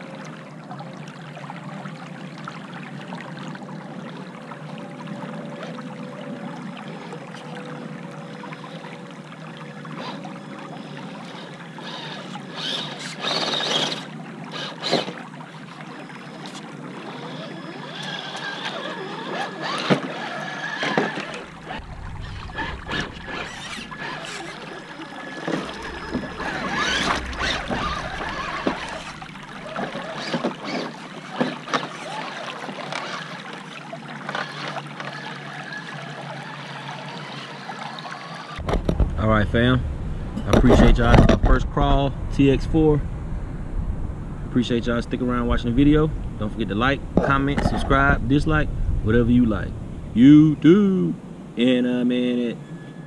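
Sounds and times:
creek water rippling over rocks: 0.0s - 39.4s
faint electric motor whine: 3.7s - 41.3s, 51.3s - 53.0s
splashes and knocks of tyres: 17.2s - 39.2s.

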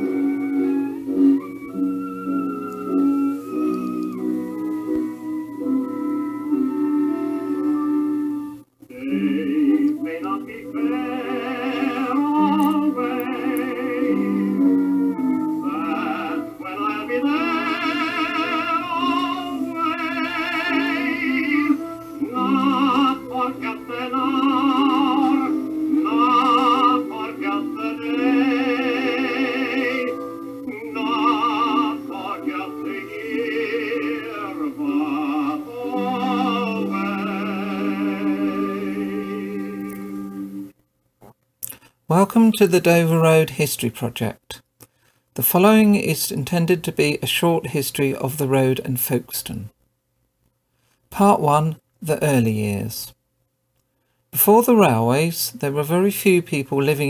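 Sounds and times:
person singing with vibrato: 0.0s - 40.7s
sustained musical accompaniment: 0.0s - 40.8s.

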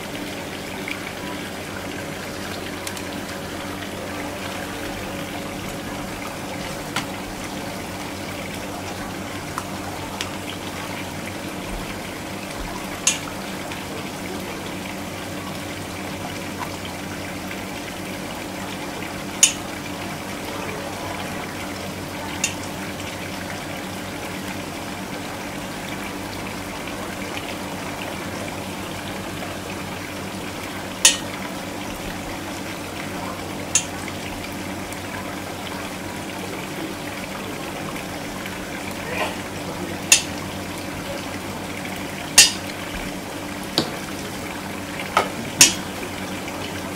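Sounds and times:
water running from hose: 0.0s - 46.9s.

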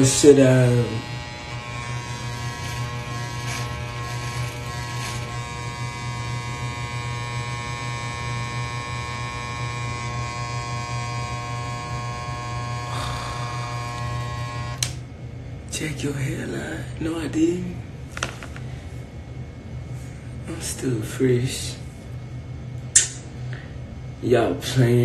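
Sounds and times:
electric hair clippers buzzing: 0.0s - 15.0s.

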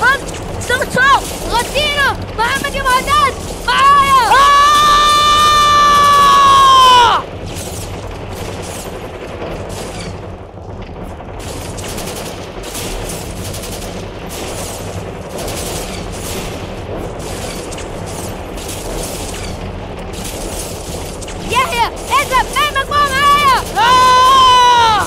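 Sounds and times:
automatic gunfire: 11.4s - 25.0s.

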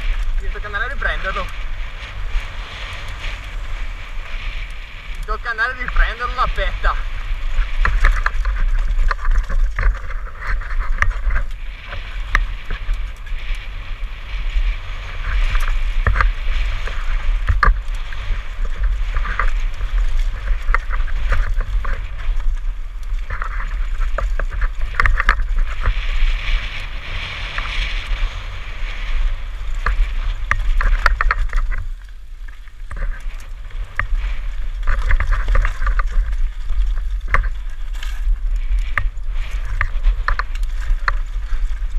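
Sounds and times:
bike rattling clicks and knocks: 0.0s - 41.9s
tyres rolling over loose stones: 0.0s - 41.9s
wind rumble on microphone: 0.0s - 41.9s.

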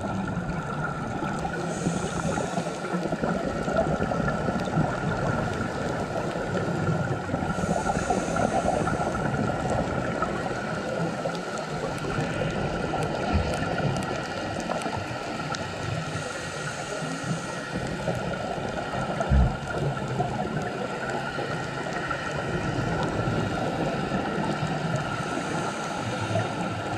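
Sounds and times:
bubbling of exhaled air underwater: 0.0s - 26.9s
regulator inhale hiss: 1.4s - 3.3s, 7.4s - 9.4s, 15.8s - 18.4s, 24.9s - 26.9s.

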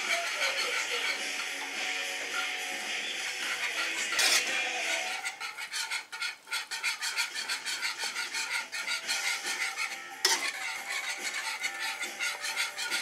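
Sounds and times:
whisk scraping a pan: 0.0s - 13.0s
whisk clink against metal: 7.0s - 13.0s.

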